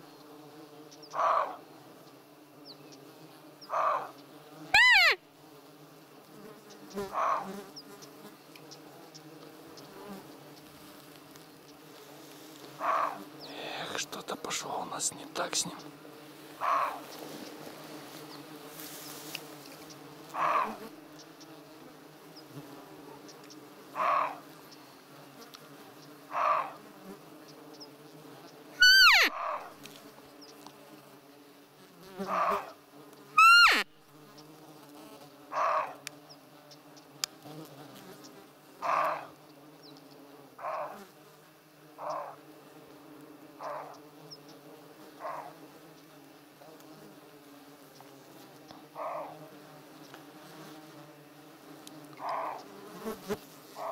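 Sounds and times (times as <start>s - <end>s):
buzz of flies and insects: 0.0s - 53.9s
deer barking: 1.1s - 1.6s, 3.7s - 4.1s, 4.8s - 5.2s, 7.1s - 7.5s, 12.8s - 13.2s, 16.6s - 17.1s, 20.4s - 20.8s, 24.0s - 24.4s, 26.3s - 26.8s, 28.8s - 29.7s, 32.2s - 32.8s, 33.4s - 33.8s, 35.5s - 36.0s, 38.8s - 39.3s, 40.6s - 41.0s, 42.0s - 42.4s, 43.6s - 44.0s, 45.2s - 45.6s, 49.0s - 49.4s, 52.2s - 52.6s
call sliding down in pitch: 4.8s - 5.2s, 28.8s - 29.3s, 33.4s - 33.8s.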